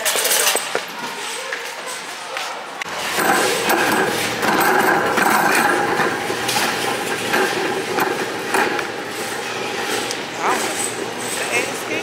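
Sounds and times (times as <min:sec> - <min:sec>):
loud noisy rattle: 0:02.9 - 0:12.0.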